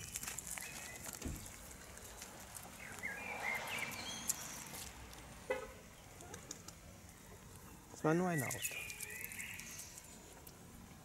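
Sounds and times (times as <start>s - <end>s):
car tyres hissing on wet road: 3.1s - 5.4s.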